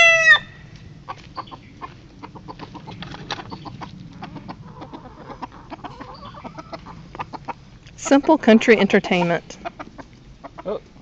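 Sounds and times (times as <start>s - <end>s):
rooster crowing: 0.0s - 0.6s
chickens clucking: 0.0s - 11.0s.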